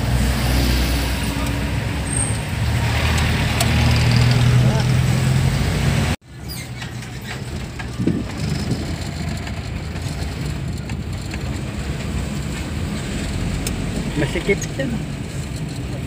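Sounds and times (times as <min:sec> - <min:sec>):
van engine and road rumble: 0:00.0 - 0:16.0
light rattles and clicks: 0:06.7 - 0:13.8.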